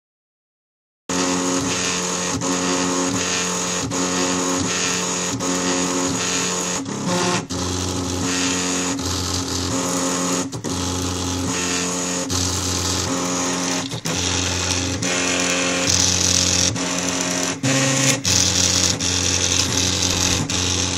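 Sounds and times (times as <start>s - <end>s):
stepper motors whining: 12.2s - 20.9s.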